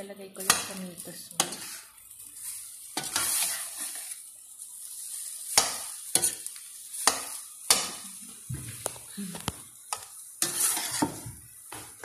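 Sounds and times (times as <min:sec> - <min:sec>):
food sizzling in a pot: 0:00.0 - 0:12.0
metal spatula scraping a pot: 0:00.4 - 0:04.3, 0:04.9 - 0:08.1, 0:09.9 - 0:12.0.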